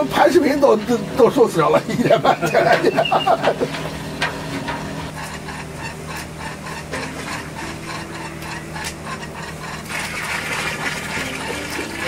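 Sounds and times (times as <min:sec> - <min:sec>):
steady low hum: 0:00.0 - 0:12.0
ladle stirring and knocking in pot: 0:02.6 - 0:12.0.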